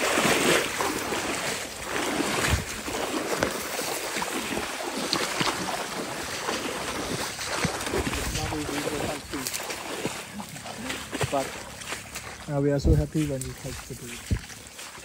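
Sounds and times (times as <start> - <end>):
water sloshing: 0.0 - 15.0
wind buffeting microphone: 1.8 - 3.0, 6.9 - 10.1.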